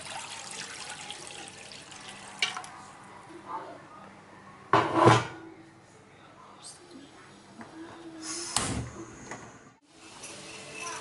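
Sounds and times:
water pouring into frying pan: 0.0 - 2.7.

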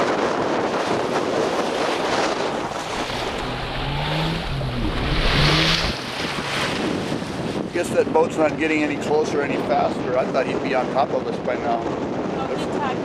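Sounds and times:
water splashing along boat hull: 0.0 - 9.6
wave splash: 0.0 - 11.0
wind buffeting microphone: 0.0 - 13.0.

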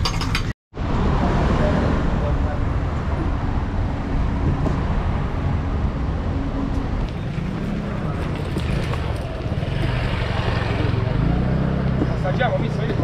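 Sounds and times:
road traffic passing: 0.3 - 13.0
people talking: 12.0 - 13.0.

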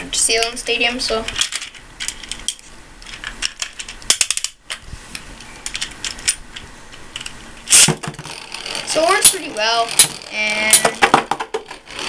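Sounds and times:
ripcord pulled loud rip: 7.7 - 11.1.

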